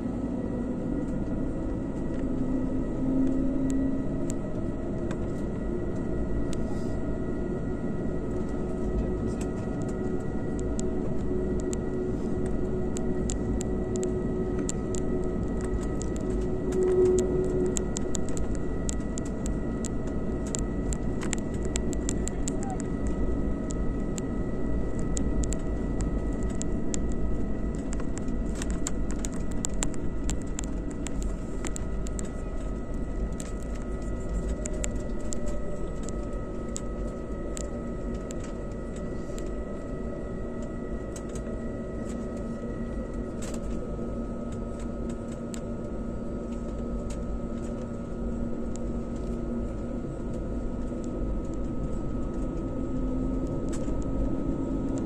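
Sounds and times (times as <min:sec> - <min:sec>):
aircraft engines rumble and hum: 0:00.0 - 0:55.0
high engine whine: 0:00.0 - 0:55.0
small clicks and knocks: 0:08.3 - 0:24.3, 0:24.9 - 0:39.6.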